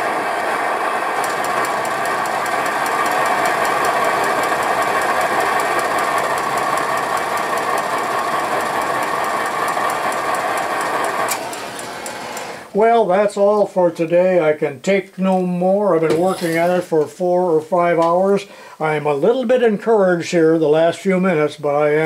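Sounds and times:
engine ticking: 0:00.0 - 0:12.5
torch hissing: 0:00.0 - 0:12.8.

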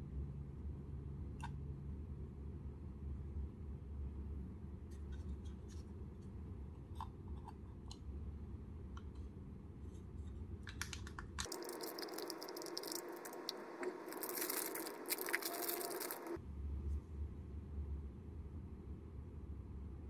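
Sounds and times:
plastic bag crinkling: 0:11.5 - 0:16.4.

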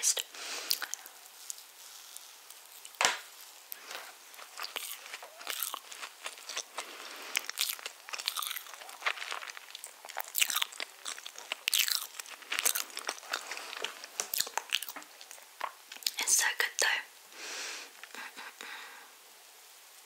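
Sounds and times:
chewing mouth clicks: 0:00.7 - 0:01.1, 0:03.8 - 0:16.2.

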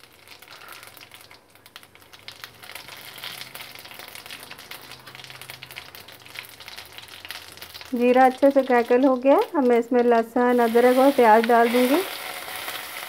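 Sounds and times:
seeds sizzling in hot oil: 0:00.0 - 0:13.0.

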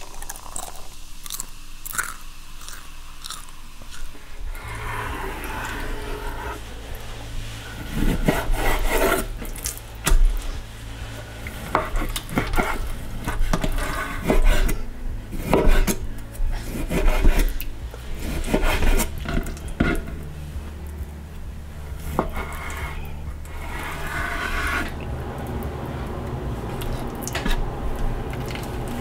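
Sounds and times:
low hum: 0:00.0 - 0:29.0
knife slicing fish: 0:16.6 - 0:17.6.

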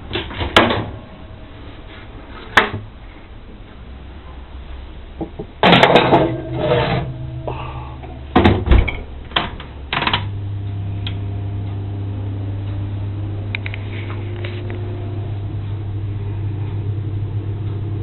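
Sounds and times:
dishes and utensils clattering: 0:05.6 - 0:07.1
kitchen appliance humming: 0:09.1 - 0:18.0.

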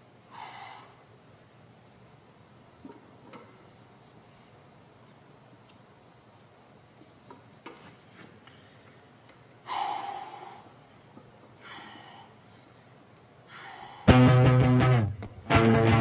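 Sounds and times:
man breathing forcefully: 0:00.3 - 0:01.1, 0:09.6 - 0:10.8, 0:11.6 - 0:12.8, 0:13.5 - 0:14.1.

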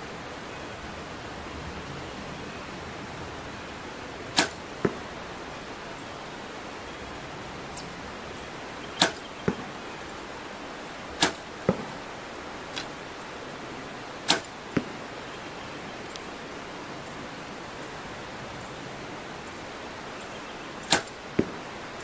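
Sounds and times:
arrow thudding into target: 0:04.3 - 0:05.0, 0:09.0 - 0:09.6, 0:11.2 - 0:11.9, 0:12.7 - 0:13.0, 0:14.3 - 0:14.9, 0:20.9 - 0:21.5
bow release crack: 0:04.4 - 0:04.6, 0:09.0 - 0:09.3, 0:11.2 - 0:11.5, 0:12.7 - 0:13.0, 0:14.3 - 0:14.6, 0:20.9 - 0:21.2.

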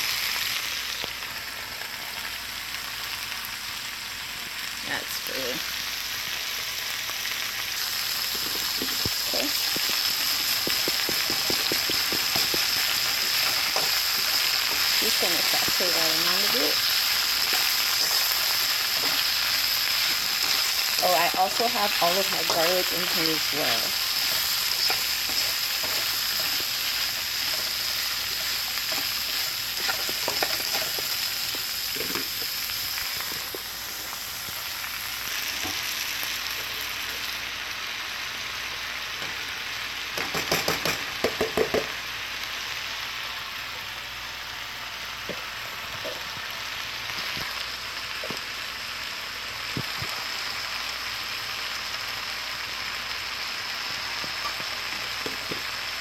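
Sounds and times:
vegetables sizzling in a wok: 0:00.0 - 0:56.0.

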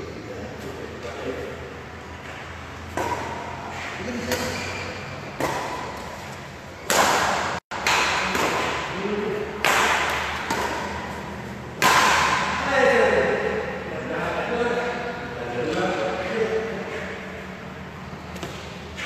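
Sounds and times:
racket hitting shuttlecock: 0:02.2 - 0:12.7, 0:18.3 - 0:19.0.

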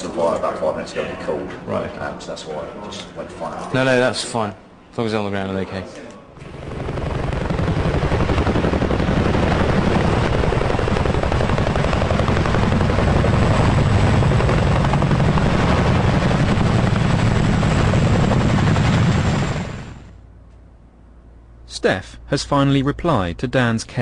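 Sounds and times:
helicopter rotors chopping: 0:06.4 - 0:20.2
turbine noise: 0:06.4 - 0:20.3.

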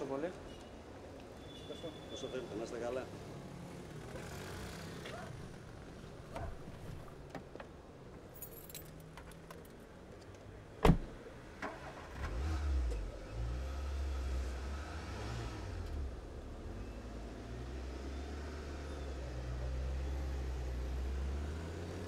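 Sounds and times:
keys jingling: 0:08.3 - 0:09.7
car door slamming: 0:10.8 - 0:11.2.

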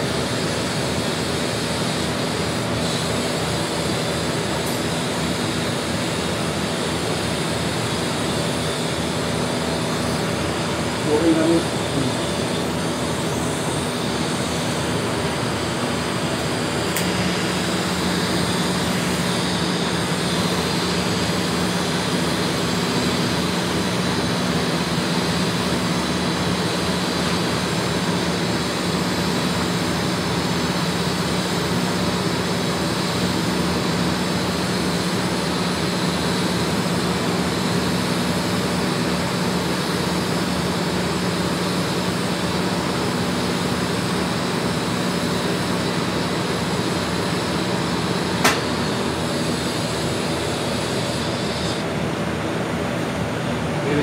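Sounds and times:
welding arc hissing and humming: 0:00.0 - 0:53.2
sharp click: 0:48.4 - 0:48.7.

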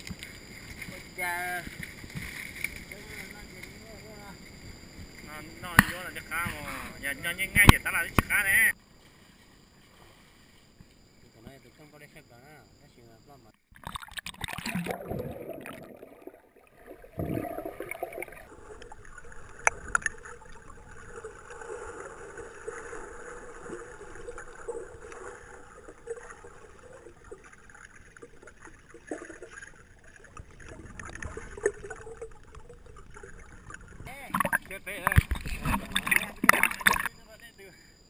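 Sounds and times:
water sloshing and splashing: 0:00.0 - 0:08.3, 0:13.7 - 0:37.2
muffled underwater noise: 0:34.1 - 0:38.0.

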